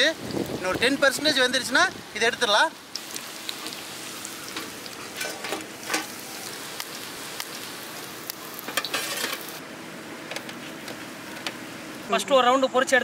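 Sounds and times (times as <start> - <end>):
slices sizzling in hot oil: 0.0 - 9.6
steel spatula scraping pan: 8.8 - 9.5.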